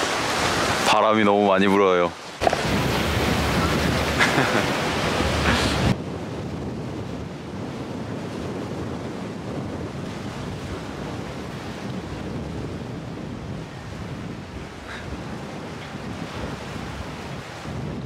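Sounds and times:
sea surf washing ashore: 0.0s - 18.0s
wind buffeting microphone: 2.4s - 18.0s.

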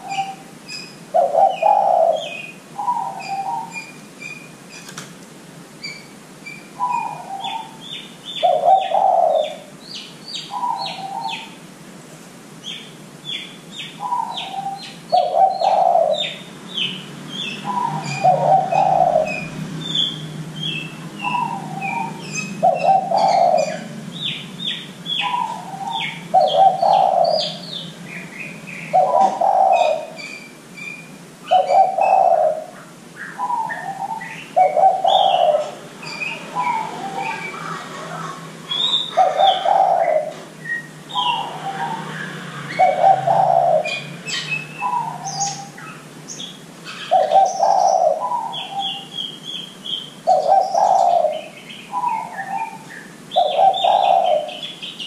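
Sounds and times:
small birds chirping: 0.0s - 5.0s, 5.6s - 11.6s, 12.6s - 55.0s
dove cooing: 1.1s - 3.9s, 6.8s - 9.7s, 14.0s - 24.4s, 25.1s - 30.3s, 31.5s - 46.0s, 46.9s - 49.2s, 50.2s - 55.0s.

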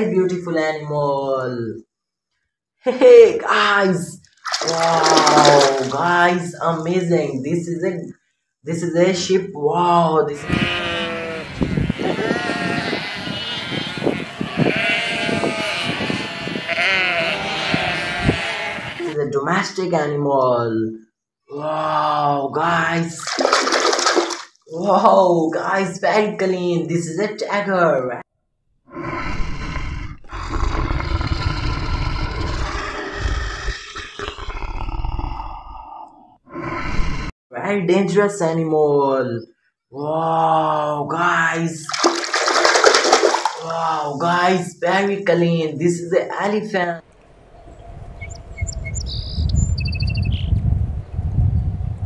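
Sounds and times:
flock of sheep bleating: 10.4s - 19.2s
tiger roaring and growling: 28.9s - 37.3s.

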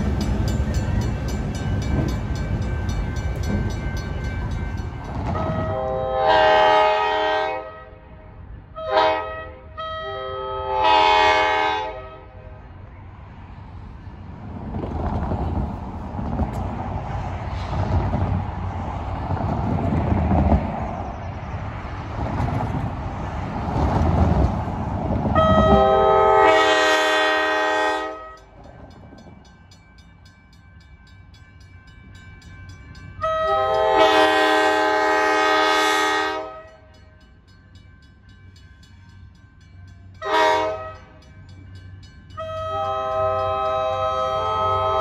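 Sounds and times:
train air horn blasts: 5.4s - 12.5s, 25.4s - 28.4s, 33.2s - 36.9s, 40.2s - 41.2s, 42.4s - 45.0s.

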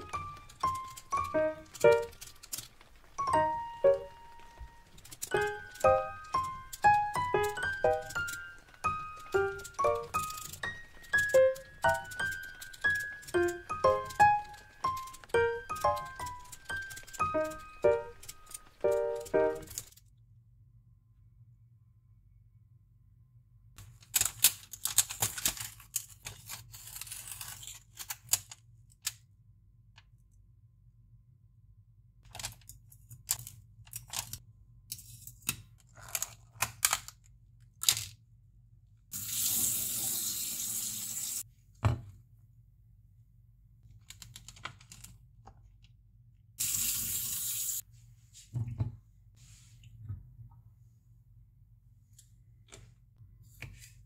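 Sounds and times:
plastic packaging crinkling: 0.0s - 20.0s, 23.8s - 28.5s
kitchen tap running: 39.2s - 41.4s, 46.6s - 47.8s.

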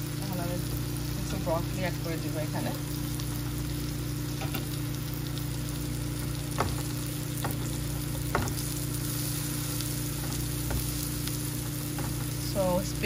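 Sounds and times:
vegetables sizzling in a frying pan: 0.0s - 13.0s
spatula knocking against pan: 6.5s - 8.7s.

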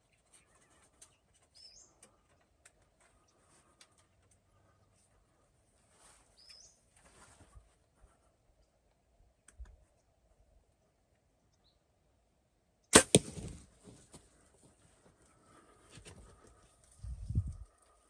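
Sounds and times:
gunshot crack: 12.9s - 13.6s.

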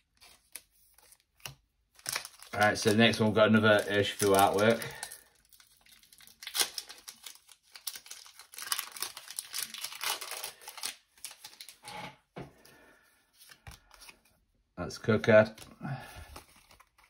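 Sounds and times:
foil wrapper tearing and crinkling: 0.2s - 11.9s.

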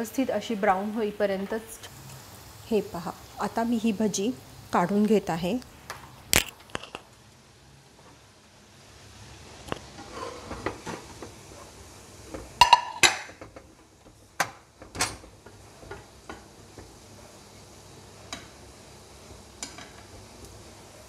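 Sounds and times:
steel spoon clinking in frying pan: 12.6s - 13.2s.

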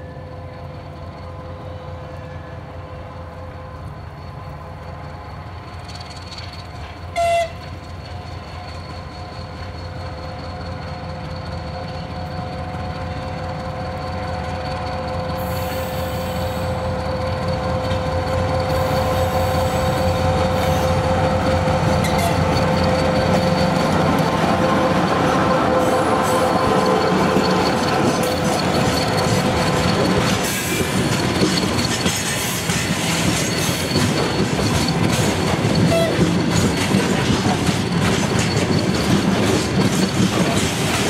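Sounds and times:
diesel locomotive hauling train: 0.0s - 41.0s
train horn toot: 7.2s - 7.7s, 15.4s - 17.2s, 17.8s - 21.4s, 22.0s - 22.6s, 24.3s - 26.9s, 35.9s - 36.2s.

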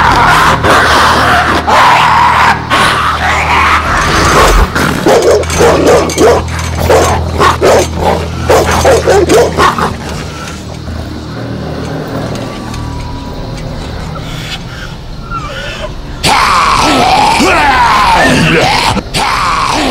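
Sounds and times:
dog barking fiercely: 0.0s - 10.2s.

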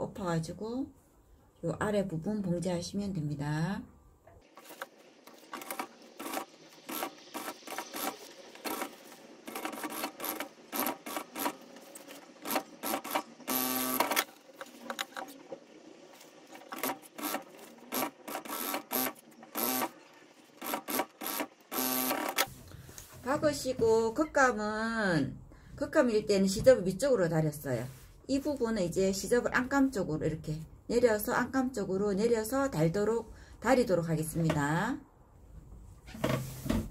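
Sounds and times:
sewing machine stitching: 4.6s - 15.5s, 16.2s - 22.5s.

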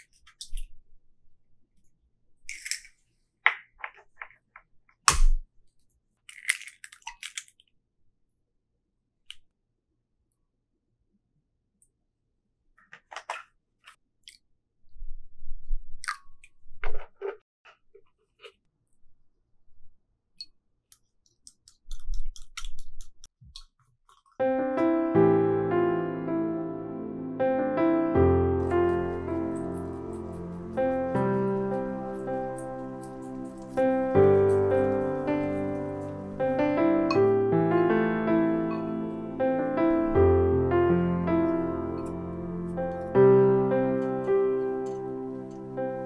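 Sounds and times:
eggshell crackling: 6.2s - 7.7s, 28.6s - 37.3s
gentle piano music: 24.4s - 46.0s.

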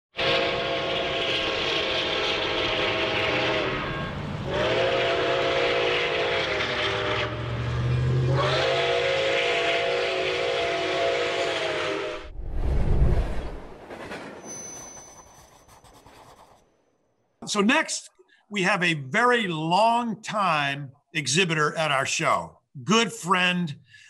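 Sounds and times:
steam locomotive chime whistle: 0.2s - 12.2s
low rumble: 12.2s - 14.4s.

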